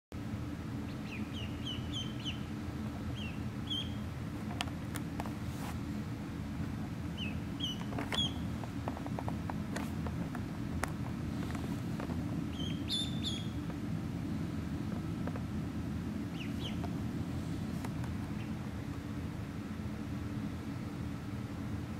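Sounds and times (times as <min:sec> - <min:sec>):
low hum: 0:00.2 - 0:21.9
ducklings peeping: 0:00.8 - 0:04.2, 0:07.1 - 0:08.6, 0:11.4 - 0:13.8, 0:16.2 - 0:18.7.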